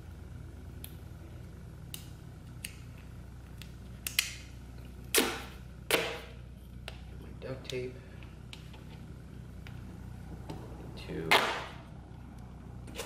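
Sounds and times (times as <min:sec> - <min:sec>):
duct tape ripping off roll: 0:05.1 - 0:06.2.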